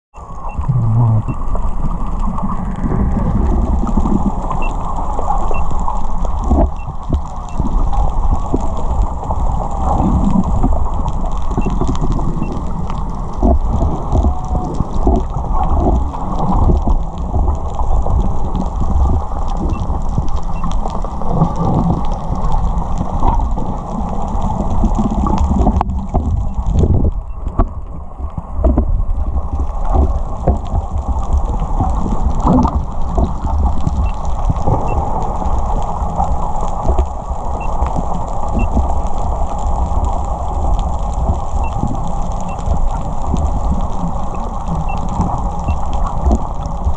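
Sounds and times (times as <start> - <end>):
muffled churning water: 0.1 - 46.9.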